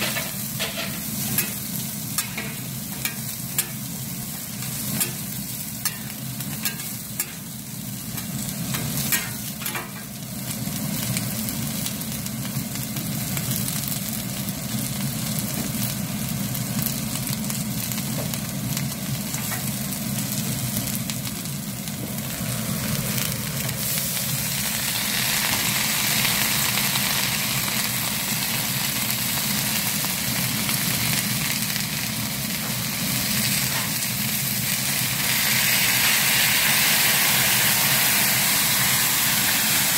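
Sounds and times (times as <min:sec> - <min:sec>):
food sizzling on a griddle: 0:00.0 - 0:39.9.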